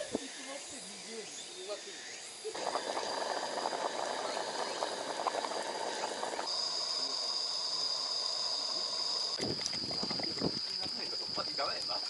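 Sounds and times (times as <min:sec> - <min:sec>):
stew bubbling and popping: 0:02.6 - 0:06.5, 0:09.4 - 0:10.8
steady high-pitched tone: 0:02.6 - 0:09.4.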